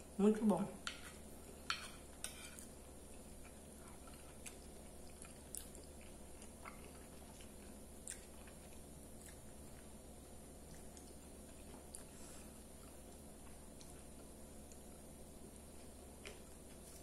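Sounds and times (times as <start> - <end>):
steady low hum: 0.0 - 17.0
close-mouthed chewing: 2.6 - 10.0.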